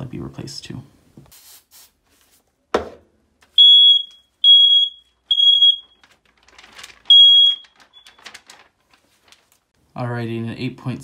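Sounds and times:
smoke alarm beeping: 0:03.6 - 0:06.0, 0:07.1 - 0:08.2.

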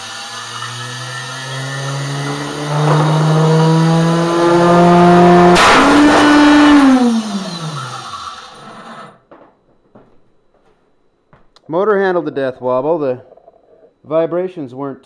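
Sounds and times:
router motor whining: 0:00.0 - 0:09.2
record shattering crack: 0:02.2 - 0:06.8.

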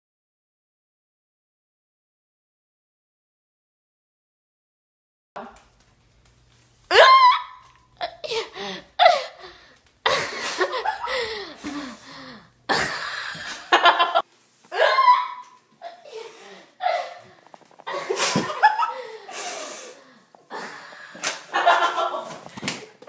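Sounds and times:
women laughing and shrieking: 0:06.9 - 0:09.4, 0:13.5 - 0:16.1
breathy gasps: 0:08.3 - 0:13.6, 0:18.9 - 0:21.4.

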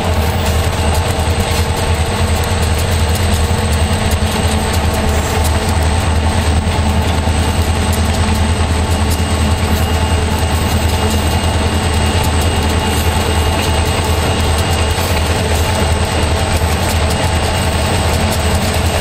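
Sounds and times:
diesel locomotive drone: 0:00.0 - 0:19.0.

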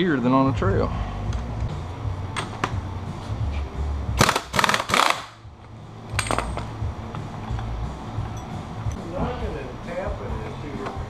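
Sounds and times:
pneumatic impact wrench bursts: 0:04.2 - 0:05.4.

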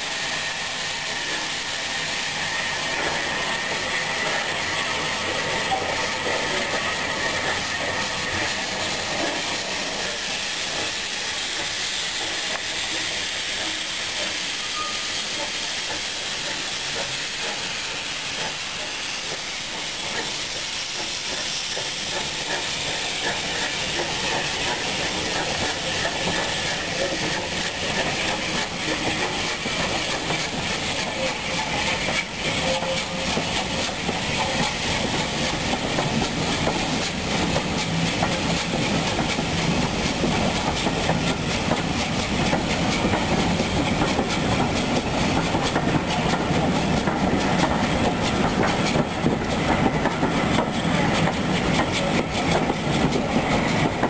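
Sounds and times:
steam locomotive hissing: 0:00.0 - 0:54.0
wheels clattering on rails: 0:19.3 - 0:54.0.

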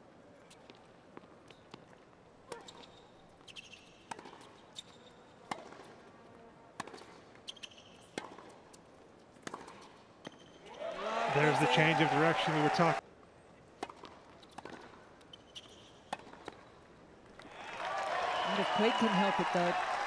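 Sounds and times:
sneaker squeaks: 0:02.5 - 0:05.6, 0:06.8 - 0:08.3, 0:14.3 - 0:16.8
tennis ball hit by rackets: 0:04.0 - 0:04.9, 0:05.5 - 0:06.0, 0:06.8 - 0:08.6, 0:09.4 - 0:10.4, 0:13.8 - 0:15.0, 0:15.6 - 0:16.7.

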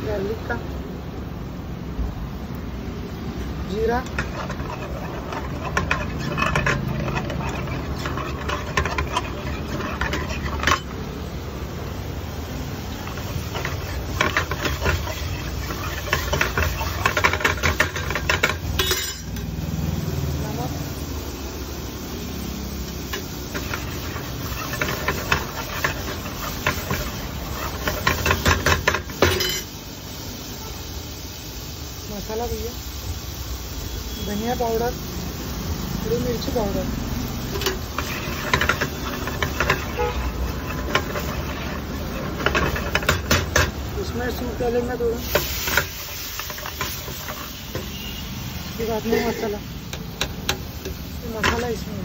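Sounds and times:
ladle scraping a frying pan: 0:03.3 - 0:11.4, 0:12.5 - 0:19.5, 0:22.9 - 0:29.7, 0:37.3 - 0:51.8.

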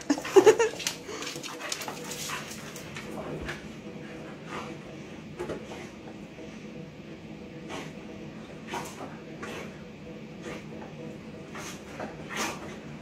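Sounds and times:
dogs scuffling: 0:00.0 - 0:03.7
dogs grumbling and panting: 0:00.0 - 0:13.0.

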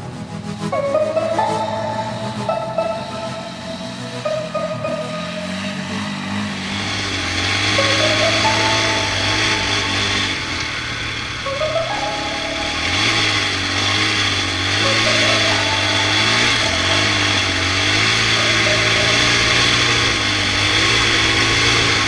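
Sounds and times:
quad engine revving: 0:05.2 - 0:22.0.

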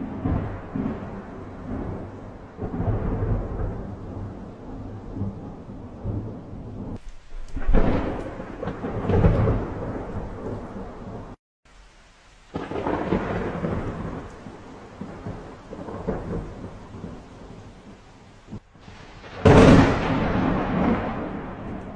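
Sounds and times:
thunder rumbling: 0:00.0 - 0:11.4, 0:12.4 - 0:21.9
rain-like hiss: 0:06.0 - 0:21.9.

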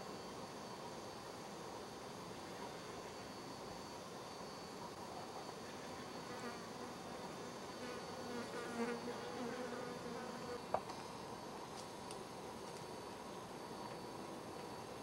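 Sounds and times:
flying insect buzzing: 0:05.6 - 0:10.8.

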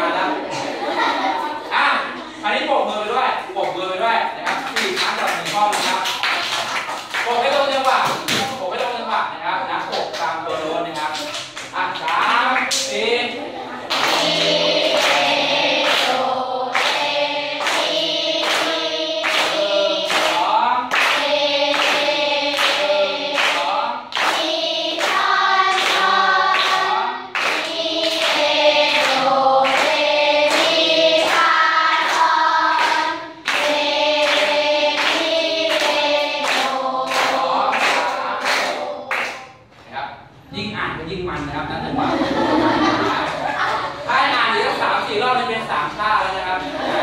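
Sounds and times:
children singing in unison: 0:00.0 - 0:02.2, 0:13.5 - 0:39.6
children clapping a beat: 0:04.4 - 0:09.0, 0:09.7 - 0:13.0, 0:13.9 - 0:39.7.

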